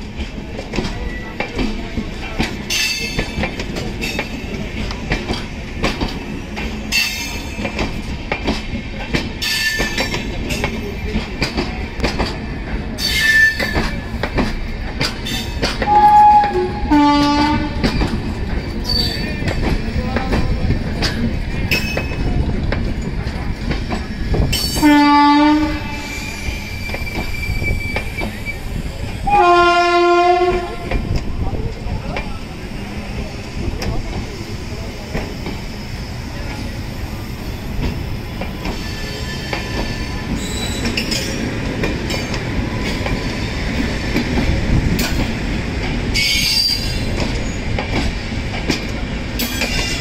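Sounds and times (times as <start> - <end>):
train coaches rumbling past: 0.0 - 50.0
wheels clacking over rail joint: 0.1 - 32.4, 37.8 - 50.0
train horn blasts: 15.8 - 17.9, 24.8 - 26.2, 29.2 - 31.0.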